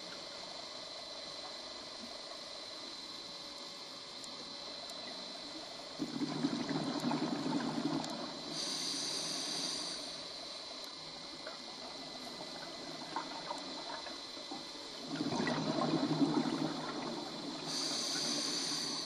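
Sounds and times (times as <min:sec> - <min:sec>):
exhaled bubbles rumbling: 0:05.9 - 0:08.5, 0:11.4 - 0:19.0
regulator breath hiss: 0:08.2 - 0:10.8, 0:16.7 - 0:19.0.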